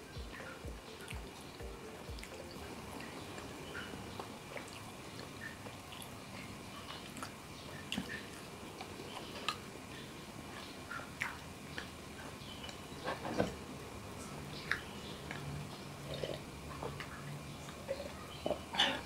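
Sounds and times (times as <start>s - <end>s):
person chewing and swallowing: 16.1s - 17.0s.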